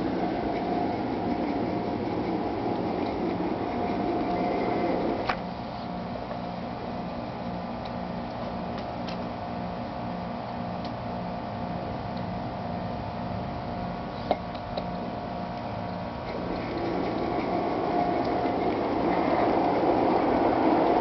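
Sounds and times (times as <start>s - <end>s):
model train running on track: 0.0s - 5.4s, 16.3s - 21.0s.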